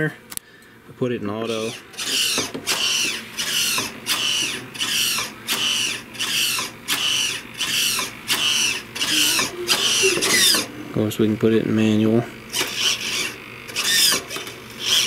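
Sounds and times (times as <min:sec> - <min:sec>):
servo whining: 0:01.4 - 0:11.0, 0:12.3 - 0:15.0.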